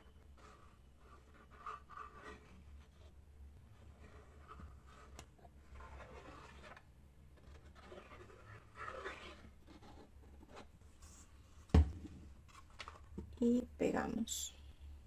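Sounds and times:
low steady hum: 0:09.6 - 0:15.0.

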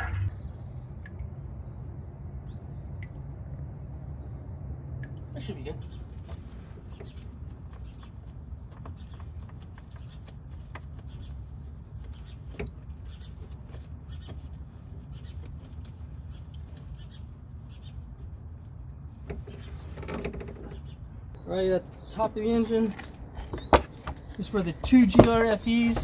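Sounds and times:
steady low rumble: 0:00.0 - 0:19.3.

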